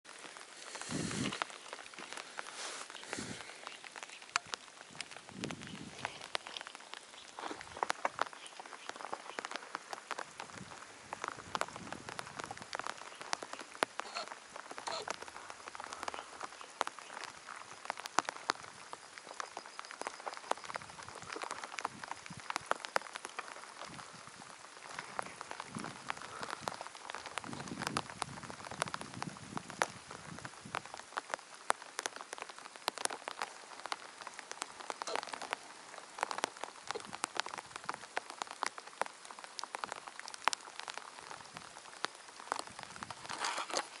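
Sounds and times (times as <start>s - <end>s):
rain pattering: 0.0s - 44.0s.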